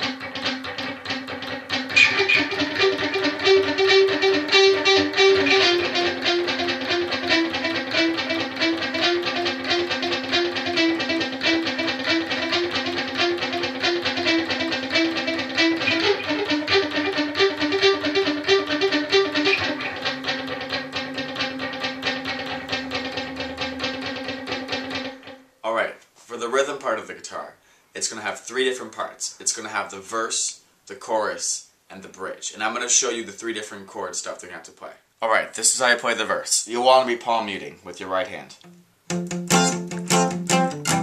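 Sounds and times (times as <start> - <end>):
electric guitar lead line: 0.0 - 25.6, 38.6 - 41.0.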